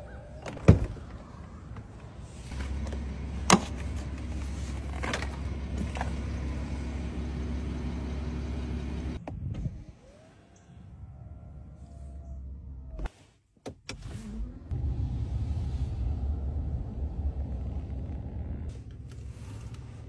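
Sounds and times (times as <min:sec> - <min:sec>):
low electric motor hum: 0:02.5 - 0:13.1.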